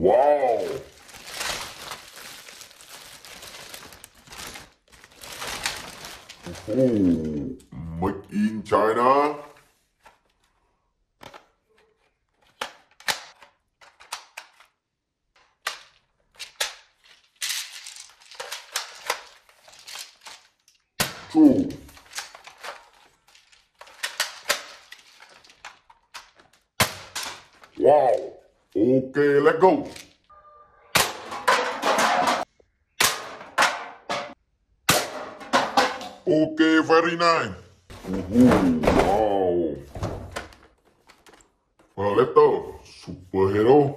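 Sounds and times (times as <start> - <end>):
rustling: 0.5 - 7.6, 15.8 - 20.8
cans knocked over: 31.0 - 36.2.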